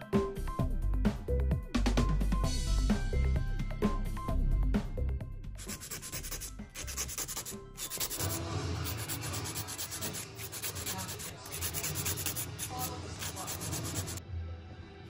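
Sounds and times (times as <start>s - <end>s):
nail file scraping fingernails: 5.6s - 14.2s.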